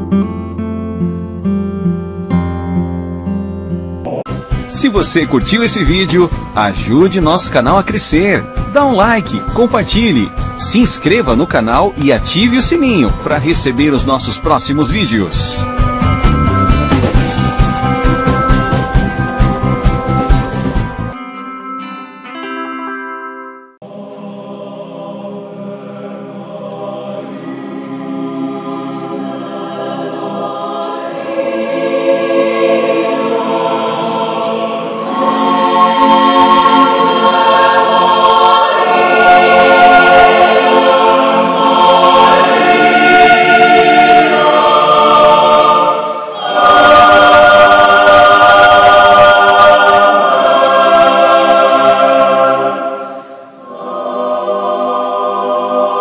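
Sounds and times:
choir singing held chords: 4.0s - 21.2s, 23.8s - 56.0s.

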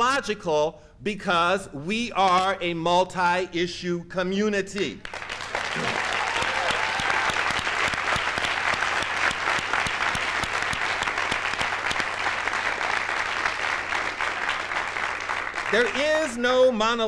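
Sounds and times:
audience applauding: 5.0s - 16.2s.

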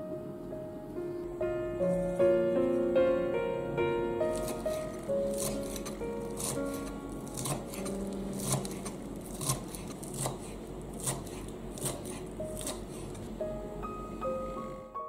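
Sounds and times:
knife chopping on wooden board: 4.3s - 13.2s.

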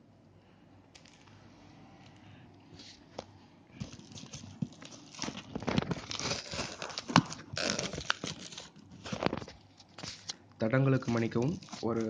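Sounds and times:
cardboard and tape tearing: 3.9s - 10.3s.

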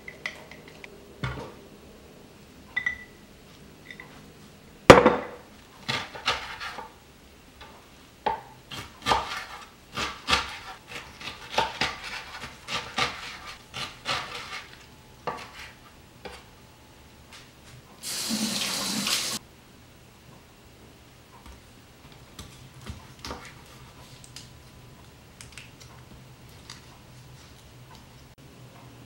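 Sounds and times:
kitchen tap running: 18.0s - 19.4s.

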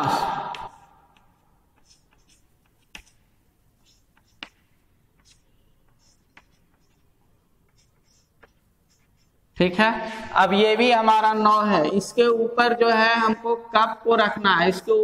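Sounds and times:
chalk tapping on blackboard: 0.6s - 9.5s.

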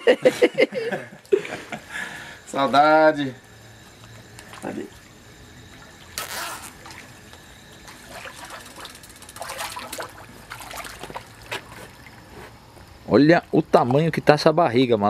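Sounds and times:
water trickling and splashing: 3.4s - 14.2s.

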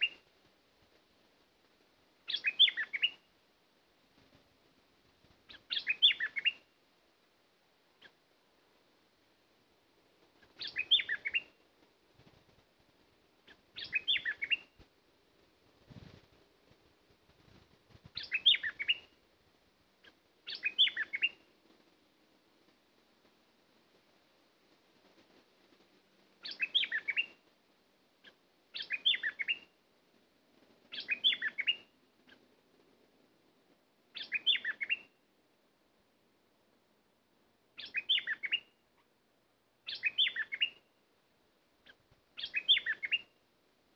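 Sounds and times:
bulbul singing whistled notes: 2.3s - 3.2s, 5.5s - 6.7s, 10.6s - 11.6s, 13.8s - 14.7s, 18.2s - 19.1s, 20.5s - 21.4s, 26.4s - 27.4s, 28.8s - 29.7s, 30.9s - 31.9s, 34.2s - 35.1s, 37.8s - 38.8s, 39.9s - 40.8s, 42.4s - 43.3s.

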